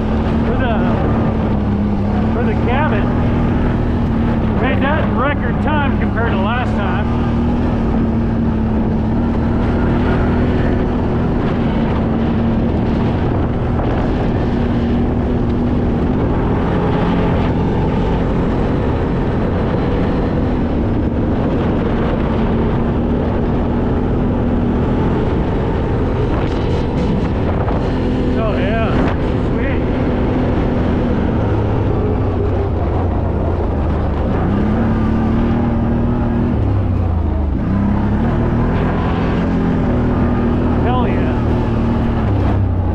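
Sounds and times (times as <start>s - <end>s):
off-road vehicle engine droning: 0.0s - 42.9s
wind on microphone: 7.8s - 34.8s.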